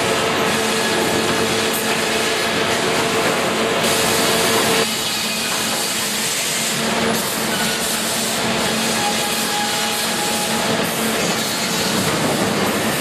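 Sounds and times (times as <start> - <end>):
saws and log conveyor rollers: 0.0 - 13.0.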